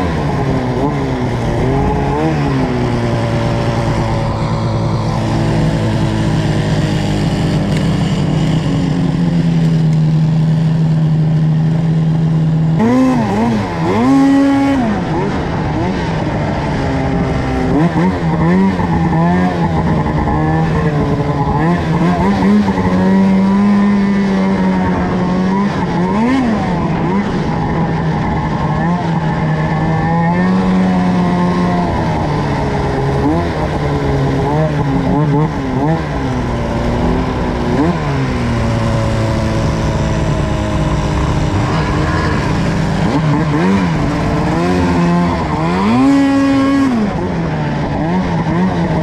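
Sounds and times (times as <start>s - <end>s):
snowmobile engine running at high revs: 0.0s - 49.0s.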